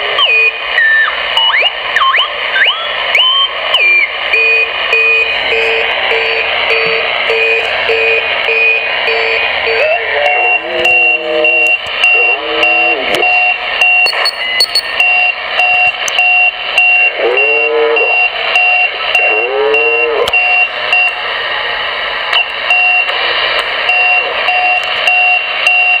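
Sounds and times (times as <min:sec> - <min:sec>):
short radio beeps: 0:14.1 - 0:15.0
warbling radio tones: 0:14.1 - 0:15.0.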